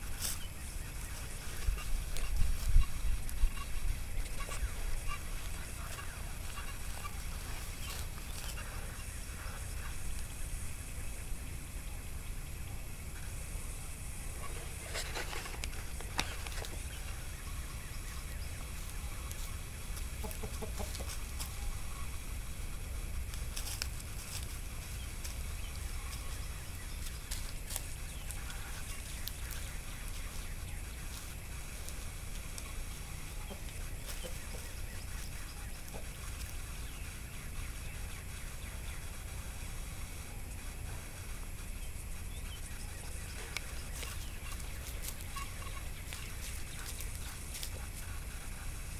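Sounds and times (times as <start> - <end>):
rooster clucking: 0.0 - 10.0, 14.2 - 22.8, 23.4 - 37.2.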